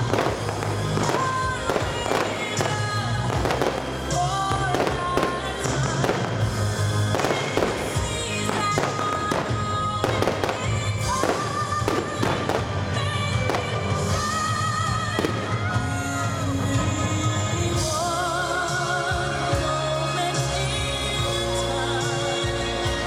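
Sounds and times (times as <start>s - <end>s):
fireworks bangs and crackles: 0.0s - 18.0s
music: 0.0s - 23.0s.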